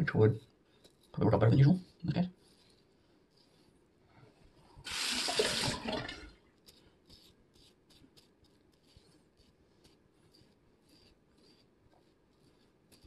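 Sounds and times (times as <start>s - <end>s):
loud hiss: 4.9s - 5.4s.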